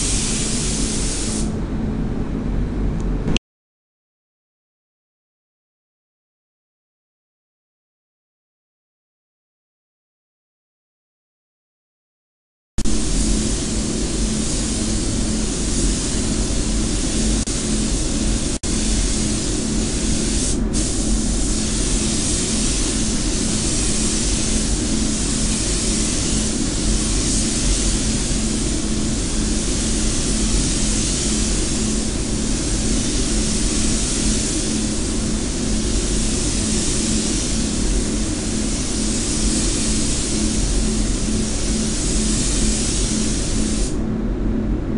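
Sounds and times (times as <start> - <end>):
spray gun hissing: 0.0 - 1.6, 12.8 - 44.0
ventilation hum: 0.0 - 3.4, 12.8 - 44.9.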